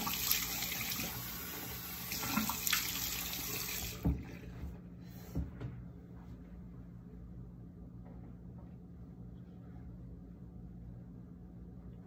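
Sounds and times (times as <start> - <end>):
water splashes of face rinsing: 0.0 - 4.2
sink tap running: 0.0 - 4.5.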